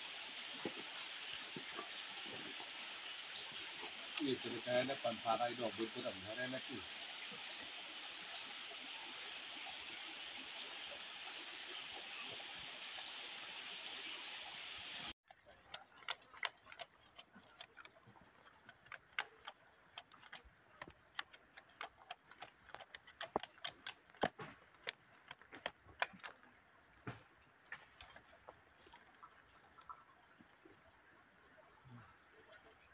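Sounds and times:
sharp clicks and ticks: 15.3 - 26.5.

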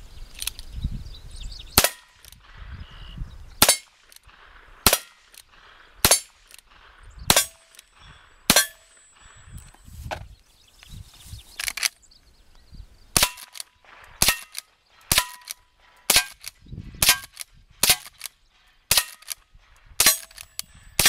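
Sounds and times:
metallic ring of steel targets: 6.0 - 6.5, 7.3 - 9.4, 13.2 - 19.4, 20.0 - 21.0.

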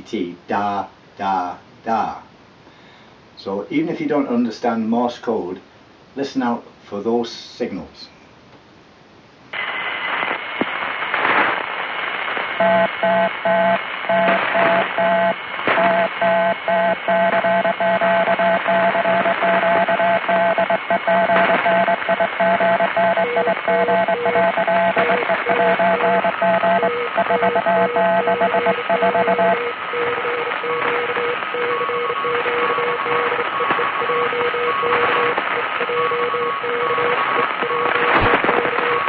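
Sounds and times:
radio static: 9.6 - 39.0
faint morse tones: 12.6 - 39.0
morse code tone: 12.6 - 39.0.

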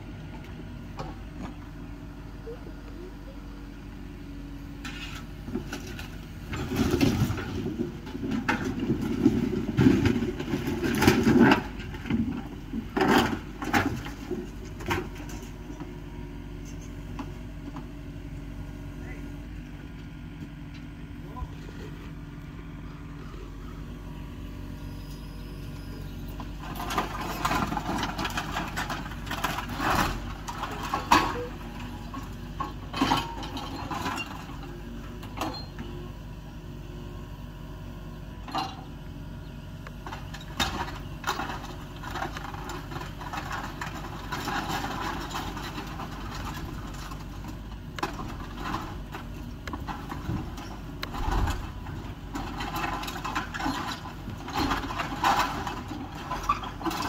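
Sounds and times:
excavator engine running: 0.0 - 57.0
debris crashing and clattering: 5.6 - 15.6, 26.6 - 34.7, 40.1 - 57.0.

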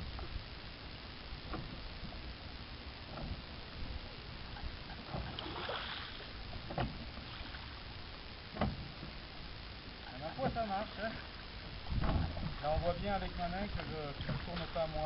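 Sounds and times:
water lapping at boat: 1.3 - 15.0
wind rumble on microphone: 11.4 - 15.0.

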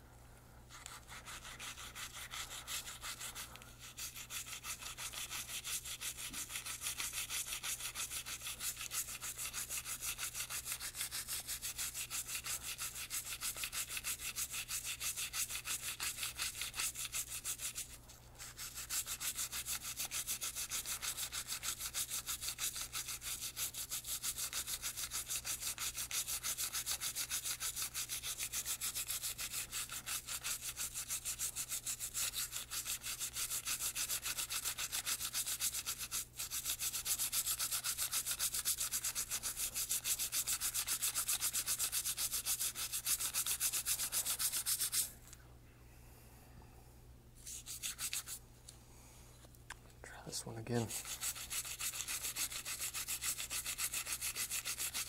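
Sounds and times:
toothbrush scrubbing metal part: 0.7 - 45.1, 50.7 - 55.0.

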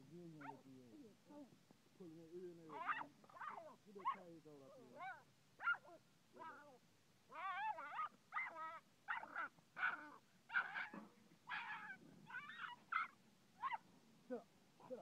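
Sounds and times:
dog yelping and whining: 2.7 - 4.2, 4.9 - 13.8.

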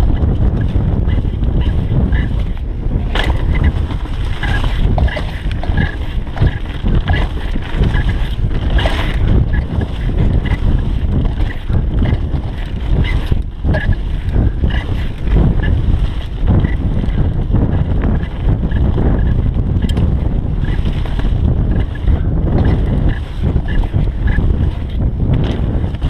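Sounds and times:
bike clicks and rattles: 0.0 - 26.0
wind buffeting microphone: 0.0 - 26.0
tyres rolling over leaves and dirt: 2.3 - 15.4.

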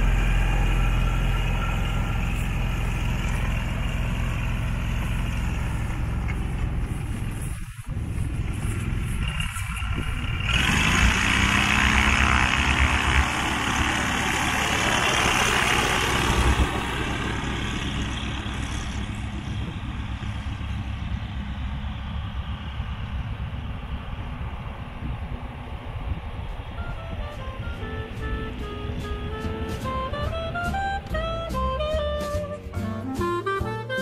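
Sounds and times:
light aircraft engine and propeller: 0.0 - 34.0.

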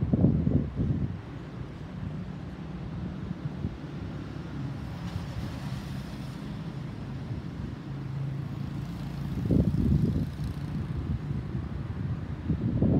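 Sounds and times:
wind buffeting microphone: 0.0 - 1.4, 9.2 - 12.9.

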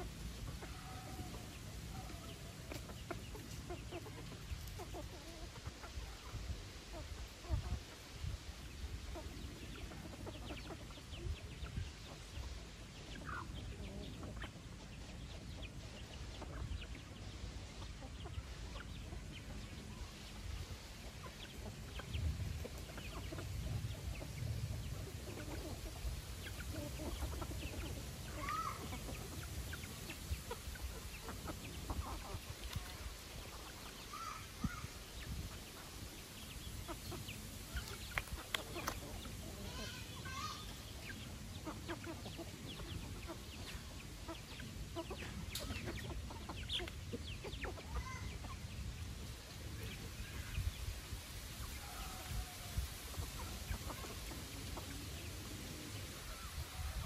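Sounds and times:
chickens clucking: 0.0 - 57.0.

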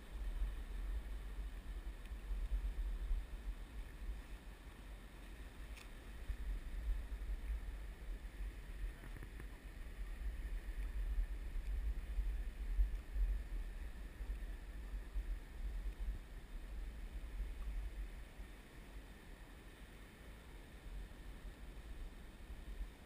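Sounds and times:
river water rumble: 0.0 - 23.0
wind on microphone: 0.0 - 23.0
small click: 5.7 - 6.0.

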